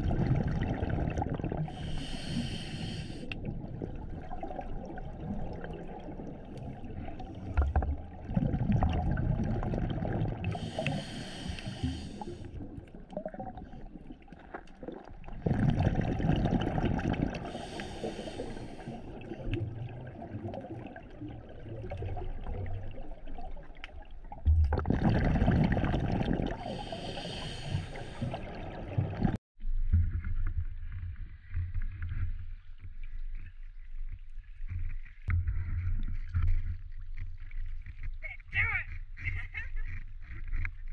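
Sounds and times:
diver exhaling bubbles: 0:00.0 - 0:23.5, 0:24.3 - 0:29.4
water at surface: 0:00.0 - 0:40.9
regulator hiss: 0:01.8 - 0:03.2.

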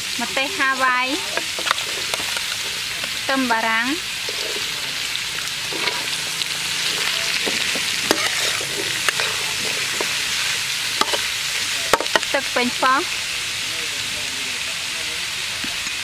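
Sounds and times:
vegetables sizzling in a wok: 0:00.0 - 0:16.0
metal spatula scraping wok: 0:00.3 - 0:12.8.

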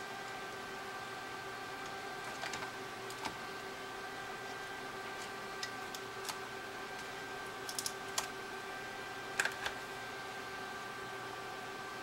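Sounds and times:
steady background hum: 0:00.0 - 0:12.0
small plastic parts clicking: 0:07.7 - 0:08.3.

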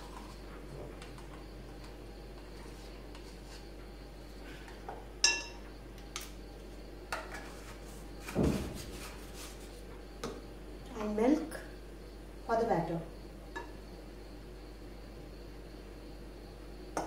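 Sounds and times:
spoons clinking against ceramic bowl: 0:05.2 - 0:05.6.

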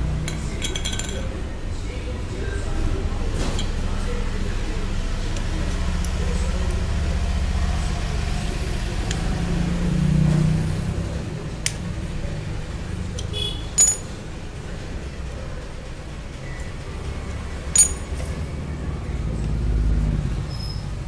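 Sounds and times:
metal parts clinking: 0:00.6 - 0:01.2, 0:13.8 - 0:14.2, 0:17.7 - 0:18.4.

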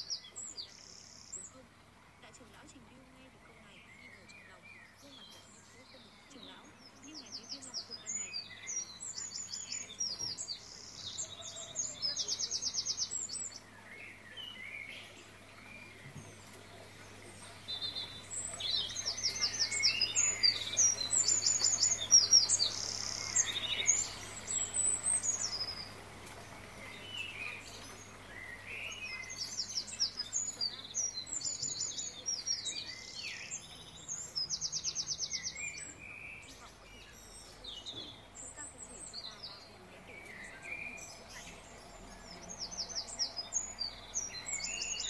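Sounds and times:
small birds chirping: 0:00.0 - 0:45.0.

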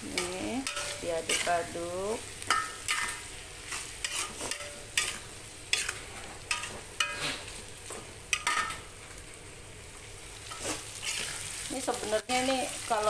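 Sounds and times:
spatula scraping a pan: 0:00.0 - 0:07.7, 0:10.4 - 0:12.8
chicken sizzling in a pan: 0:00.0 - 0:13.0.

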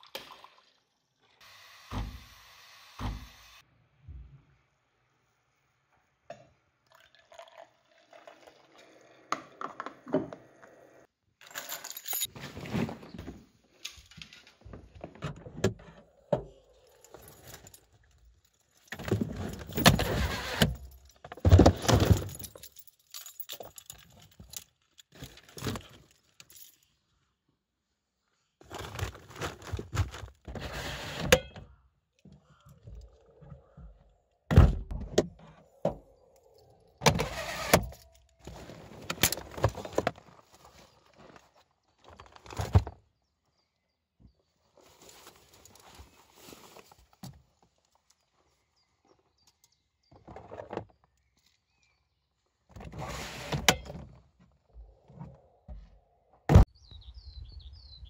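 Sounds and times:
fishing gear clinking and knocking: 0:11.4 - 0:12.3, 0:16.6 - 0:20.2, 0:20.8 - 0:26.9.

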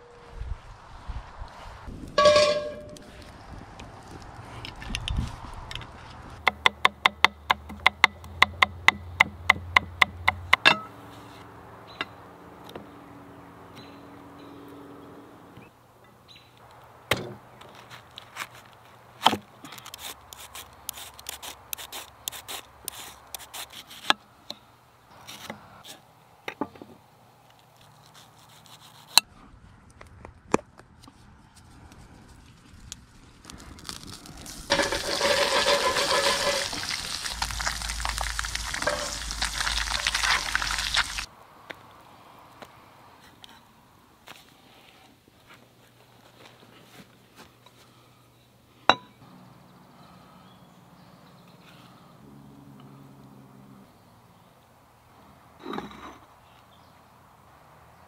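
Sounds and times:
cabbage being shredded: 0:33.7 - 0:41.3
fish sizzling in hot oil: 0:34.0 - 0:41.3.

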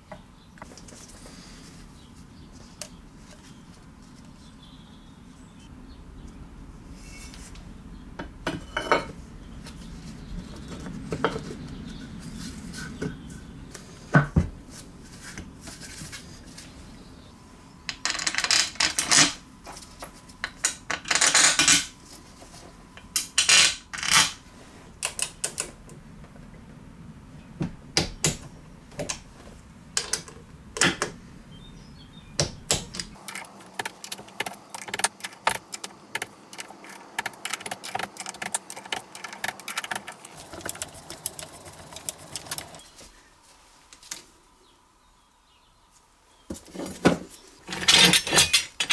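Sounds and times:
metal tools clinking: 0:47.7 - 0:48.9.

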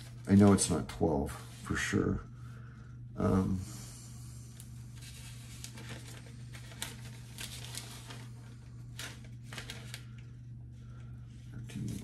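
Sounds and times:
book pages rustling: 0:00.0 - 0:01.7, 0:04.6 - 0:10.3
steady low hum: 0:00.0 - 0:12.0.

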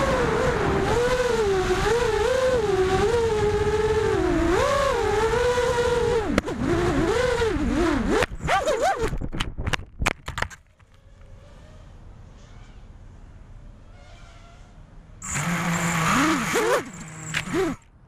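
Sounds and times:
drone motors whining: 0:15.2 - 0:17.9.

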